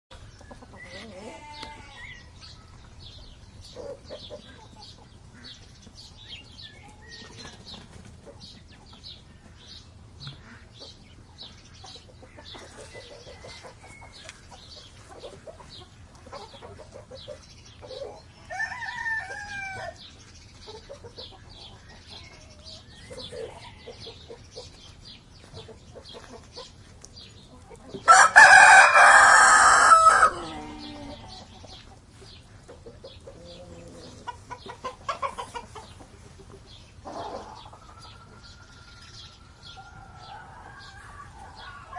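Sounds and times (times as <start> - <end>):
small birds chirping: 0.1 - 41.9
rooster crowing: 18.5 - 20.0, 28.1 - 31.2.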